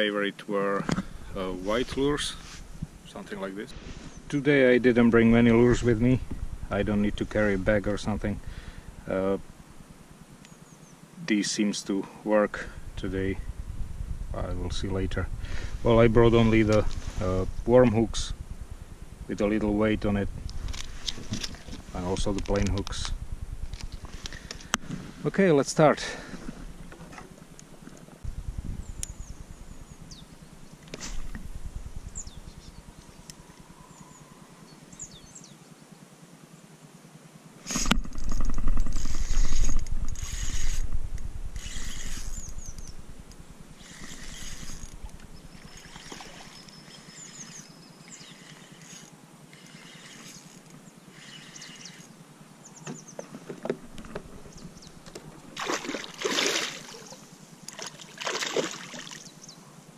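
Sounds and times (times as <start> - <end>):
low rumble: 5.0 - 10.1, 12.6 - 25.2, 28.2 - 33.9, 38.1 - 45.7
water movement: 43.8 - 52.1, 55.0 - 59.4
sharp splashes: 55.6 - 59.2.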